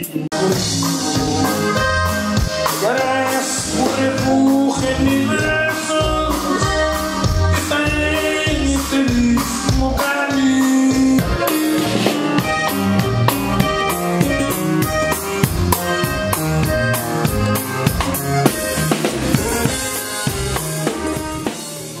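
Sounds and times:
drum kit and bass: 0.0s - 22.0s
accordion runs: 0.4s - 22.0s.

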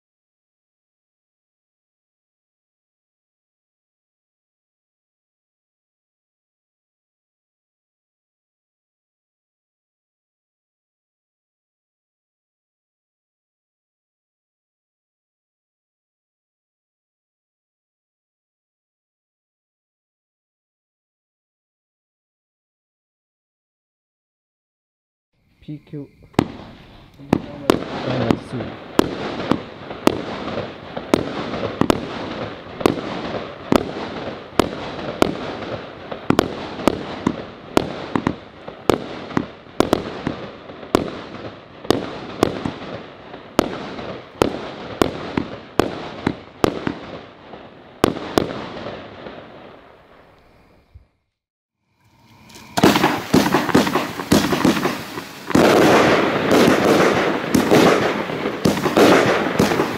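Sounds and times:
crackling firework stars: 25.4s - 59.9s
crackling hiss of strobe stars: 25.5s - 45.7s, 51.9s - 59.9s
firework launch reports: 25.6s - 47.2s, 52.5s - 59.9s.

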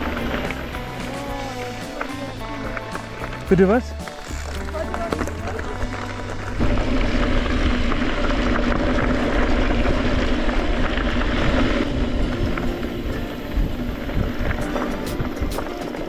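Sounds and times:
bike tyre and trail noise: 0.0s - 16.0s
wind rushing on microphone: 6.4s - 16.0s.

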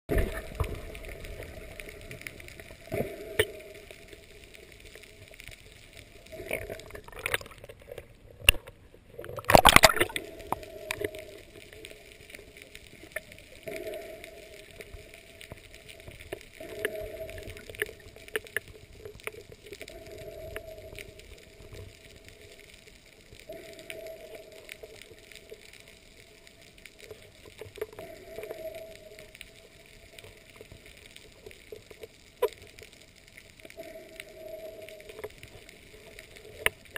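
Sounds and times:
gurgling water underwater: 0.1s - 36.9s
underwater clicks: 6.3s - 11.9s.

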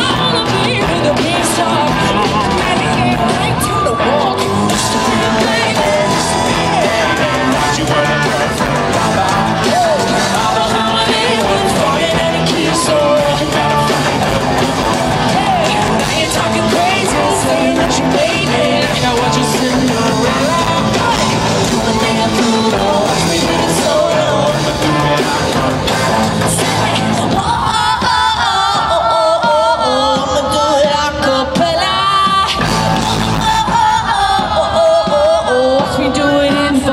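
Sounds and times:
woman singing into microphone: 0.0s - 14.2s, 26.6s - 36.9s
live pop-rock band: 0.0s - 36.9s.

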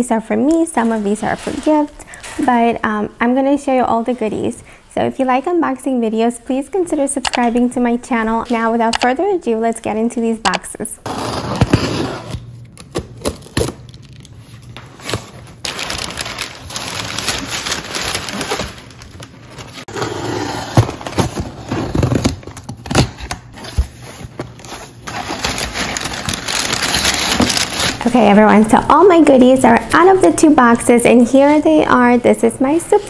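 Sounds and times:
cardboard rustling and crinkling: 13.2s - 28.2s.

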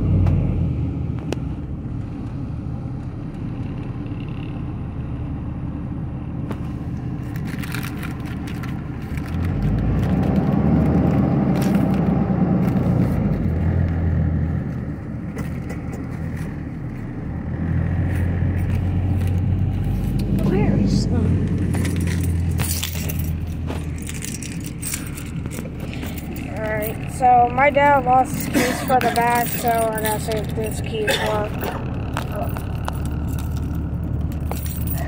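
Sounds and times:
truck engine rumble: 0.0s - 35.0s
clicks and rattles: 7.3s - 12.9s, 21.5s - 35.0s.

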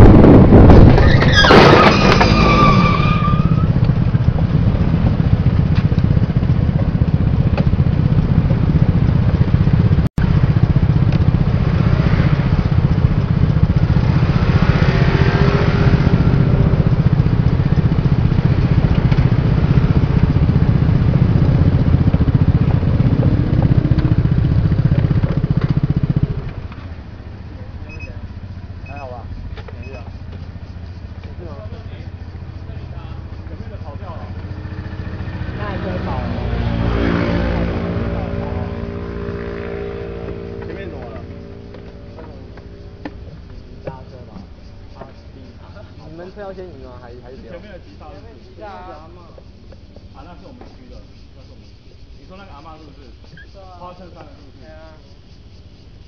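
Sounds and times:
brief falling squeal: 1.0s - 3.8s
scooter engine running: 3.3s - 47.2s.

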